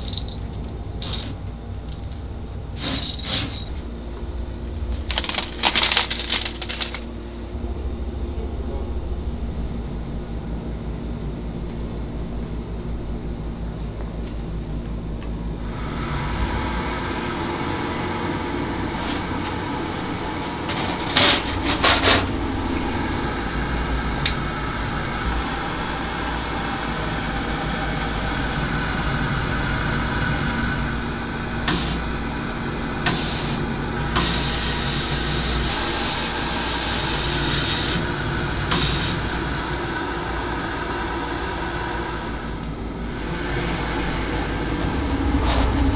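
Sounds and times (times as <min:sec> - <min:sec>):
sandblasting cabinet hum: 0:00.0 - 0:14.7, 0:15.4 - 0:45.9
compressed air and grit hiss: 0:02.7 - 0:03.8, 0:31.6 - 0:32.0, 0:33.0 - 0:33.6, 0:34.2 - 0:38.1, 0:38.7 - 0:39.3.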